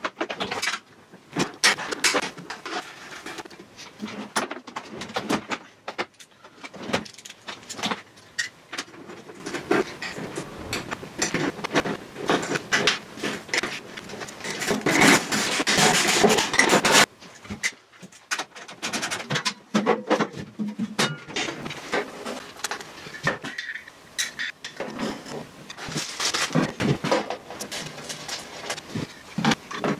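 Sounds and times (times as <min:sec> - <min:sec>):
metal parts clicking and rattling: 0:00.0 - 0:20.2
scattered clicks and knocks: 0:00.0 - 0:29.9.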